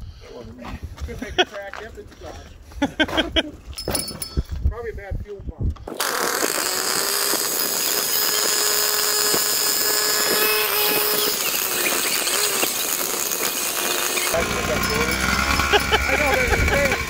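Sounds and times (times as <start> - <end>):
model truck engine running: 6.0 - 17.0.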